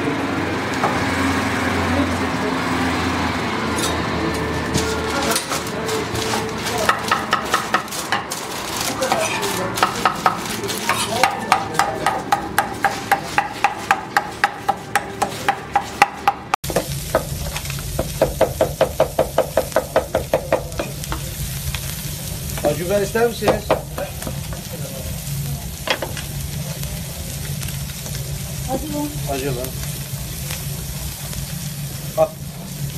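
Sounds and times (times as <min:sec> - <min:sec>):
knife chopping meat on wooden board: 0:06.8 - 0:08.3, 0:09.8 - 0:17.3, 0:18.0 - 0:21.0.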